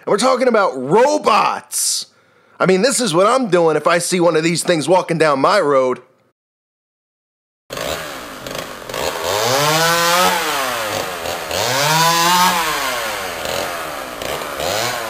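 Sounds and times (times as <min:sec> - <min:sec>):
chainsaw engine revving: 0:07.7 - 0:15.0.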